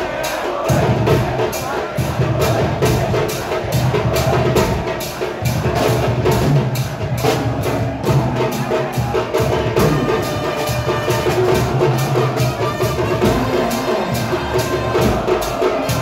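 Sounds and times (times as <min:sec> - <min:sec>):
crowd chanting: 0:00.0 - 0:16.0
drums beating fast rhythm: 0:00.0 - 0:16.0.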